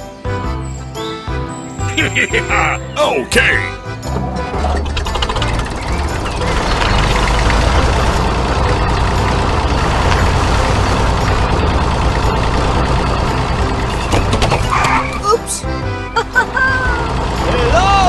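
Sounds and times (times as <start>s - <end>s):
heavy vehicle engine running: 1.3s - 18.0s.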